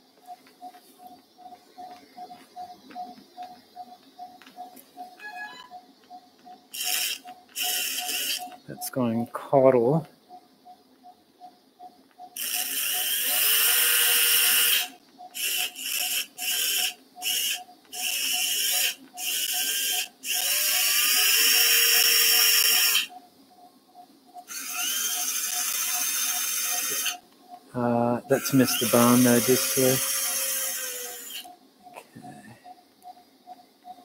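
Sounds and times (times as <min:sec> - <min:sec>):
faint regular beep: 0:00.0 - 0:13.1, 0:31.5 - 0:34.0.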